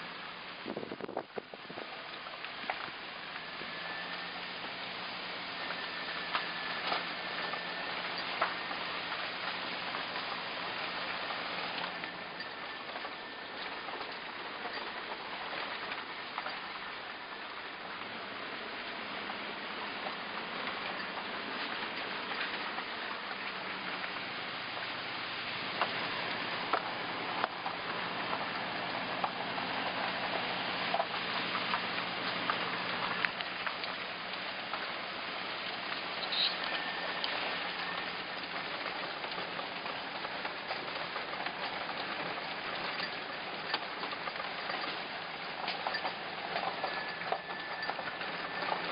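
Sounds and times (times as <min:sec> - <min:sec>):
low engine hum: 0:00.0 - 0:48.9
car tyres hissing on road: 0:15.2 - 0:38.5.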